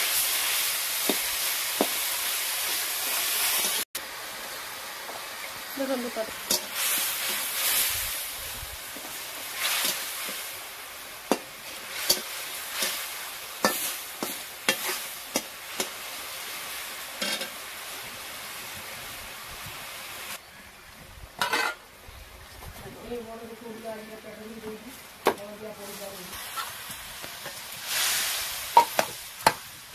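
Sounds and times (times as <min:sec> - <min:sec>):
oil sizzling: 0:00.0 - 0:20.4, 0:21.4 - 0:22.0, 0:23.2 - 0:29.9
metal spatula scraping pan: 0:11.9 - 0:15.9, 0:17.2 - 0:17.5, 0:21.4 - 0:21.8.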